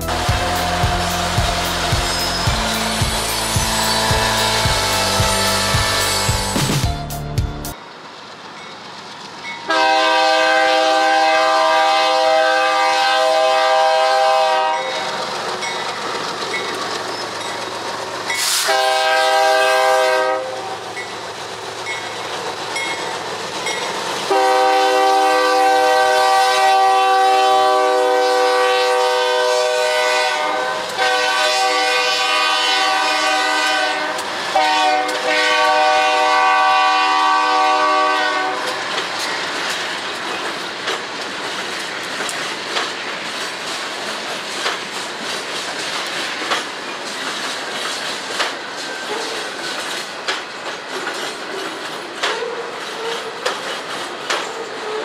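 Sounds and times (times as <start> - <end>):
train air horn blasts: 0.0 - 7.1, 9.7 - 15.1, 18.4 - 20.8, 24.3 - 38.8
locomotive rumble: 0.0 - 28.4
wheels clacking over rail joints: 14.2 - 18.6, 20.8 - 25.1, 38.4 - 55.0.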